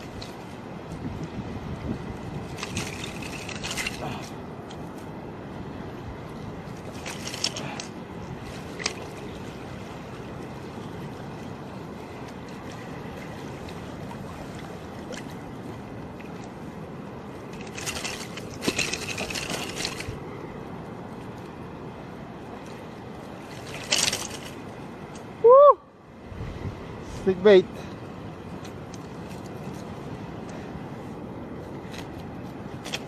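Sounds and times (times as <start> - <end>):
shallow water rushing: 0.0 - 33.0
wind: 0.0 - 33.0
water splashing: 1.8 - 4.7, 6.5 - 20.5.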